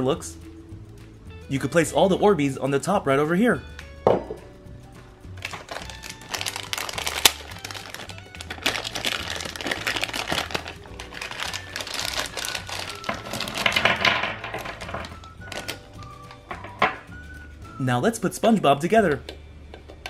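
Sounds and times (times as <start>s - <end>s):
background music: 0.0s - 20.0s
plastic bag crinkling: 5.4s - 16.4s.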